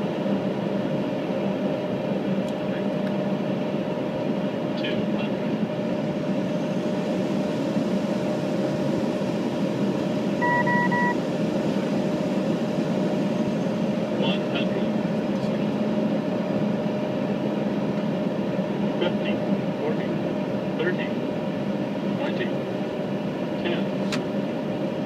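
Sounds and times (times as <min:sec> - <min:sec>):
jet cabin airflow and engine hum: 0:00.0 - 0:25.0
pulsed electronic beep: 0:10.4 - 0:11.2.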